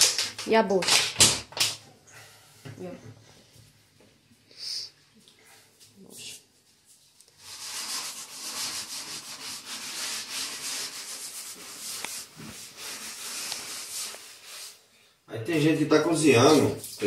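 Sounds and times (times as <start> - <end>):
sponge scrubbing wooden board: 7.4 - 14.8.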